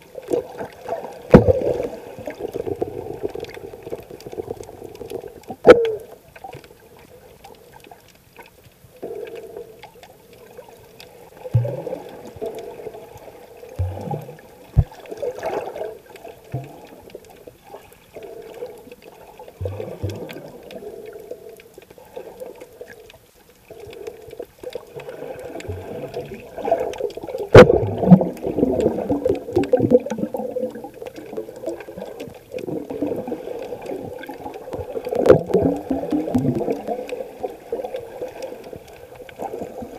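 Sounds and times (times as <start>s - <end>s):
underwater water sloshing: 0.0s - 39.9s.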